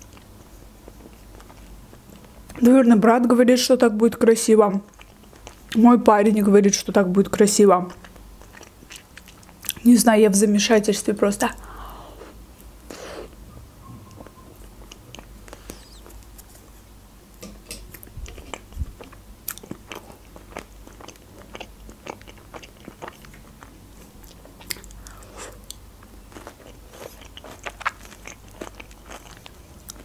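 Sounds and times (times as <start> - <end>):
person chewing crunchy food: 0.0 - 2.4, 4.9 - 5.8, 7.9 - 9.8, 14.2 - 16.8, 17.9 - 30.0.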